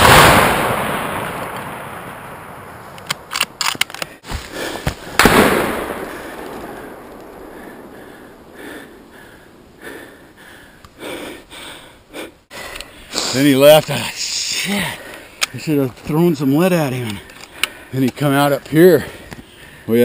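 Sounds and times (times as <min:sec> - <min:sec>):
rifle action clicking: 0:03.0 - 0:04.1
brush rustling: 0:03.8 - 0:07.3
rifle shots echoing: 0:05.0 - 0:09.7.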